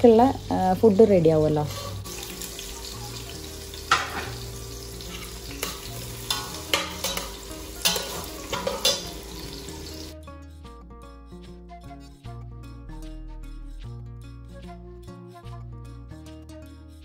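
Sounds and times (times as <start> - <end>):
food sizzling in a pan: 0.0 - 10.2
metal spoon scraping a pan: 1.6 - 10.2.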